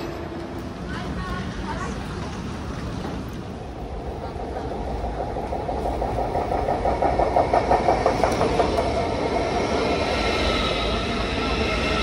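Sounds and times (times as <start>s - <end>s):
high train whine: 0.0s - 12.0s
train wheels clattering over rails: 0.0s - 12.0s.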